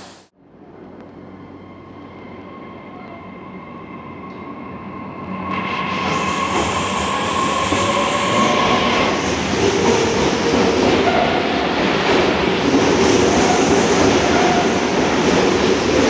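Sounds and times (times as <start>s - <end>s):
train wheels rumbling and clacking: 5.4s - 16.0s.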